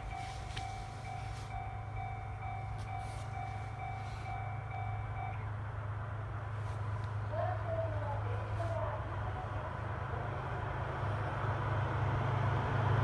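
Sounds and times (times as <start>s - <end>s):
electronic railway warning bell: 0.0s - 5.7s
steady low rumble: 0.0s - 12.2s.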